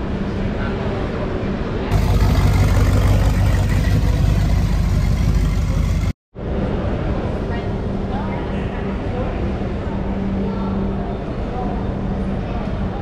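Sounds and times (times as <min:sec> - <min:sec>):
vehicle engine running: 0:01.9 - 0:06.2.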